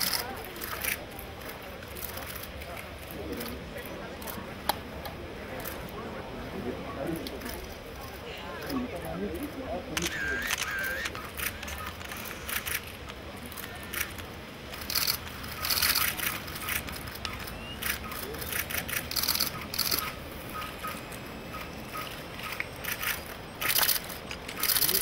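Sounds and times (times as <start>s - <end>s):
camera shutters clicking: 10.0s - 21.0s, 21.6s - 25.0s.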